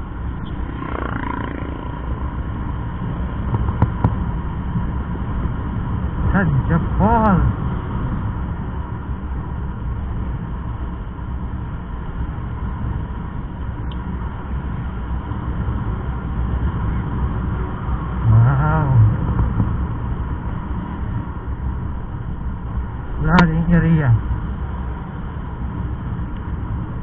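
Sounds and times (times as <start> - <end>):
motorcycle engine rumble: 0.0 - 27.0
wind and road noise: 0.0 - 27.0
low voice-like sound: 18.2 - 19.4.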